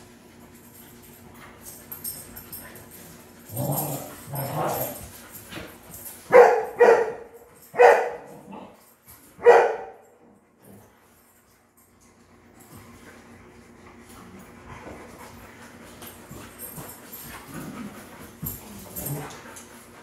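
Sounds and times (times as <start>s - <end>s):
dog barking: 6.3s - 8.4s, 9.4s - 10.1s.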